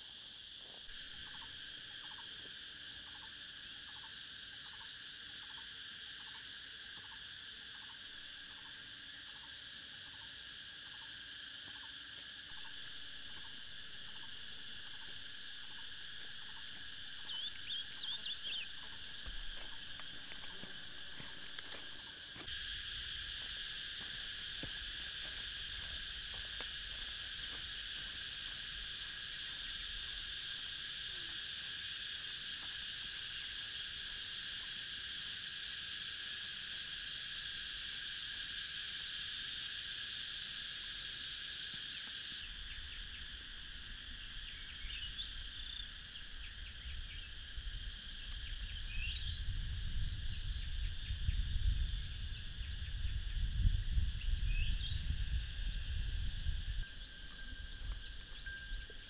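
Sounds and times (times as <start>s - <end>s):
insect chorus: 0.0s - 59.0s
bird chirps: 16.5s - 19.3s.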